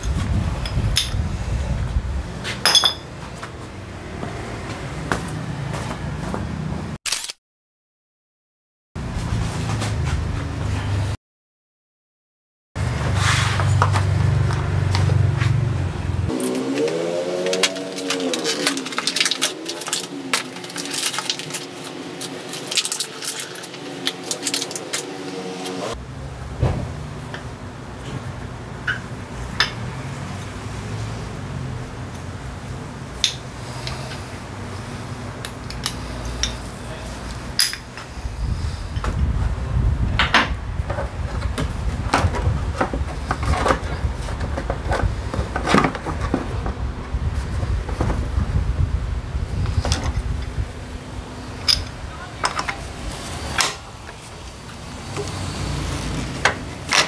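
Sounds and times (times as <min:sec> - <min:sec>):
metal tools clinking: 0:02.6 - 0:03.1, 0:17.4 - 0:25.1, 0:51.6 - 0:52.8
droning hum bending in pitch: 0:15.8 - 0:20.9.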